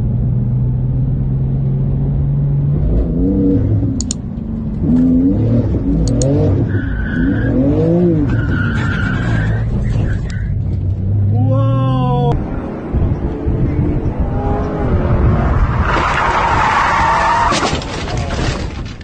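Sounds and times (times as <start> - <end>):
tyres squealing: 6.7 - 10.6
sports car engine revving: 12.3 - 15.9.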